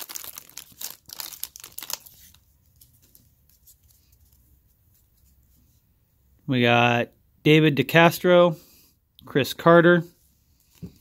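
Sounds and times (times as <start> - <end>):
foil wrapper crinkling and tearing: 0.0 - 3.2.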